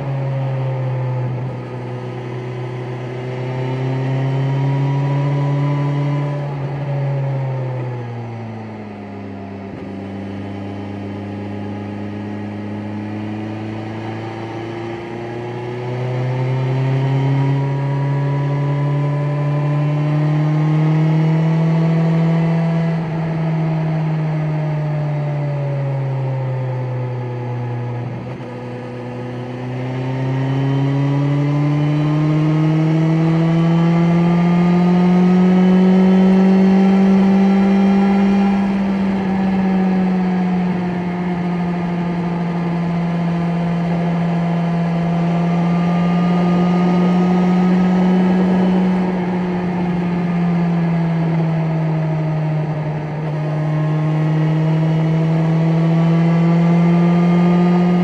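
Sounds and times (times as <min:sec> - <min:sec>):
motorcycle engine running: 0:07.9 - 0:58.0.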